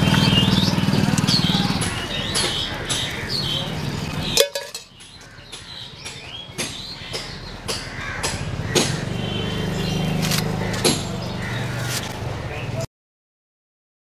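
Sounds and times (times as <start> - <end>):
vehicle engine running: 0.0 - 5.3.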